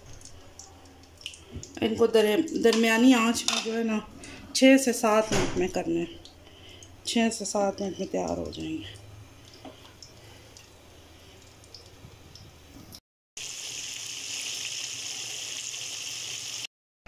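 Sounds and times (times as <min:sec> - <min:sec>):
oil sizzling while deep-frying: 0:13.4 - 0:16.7.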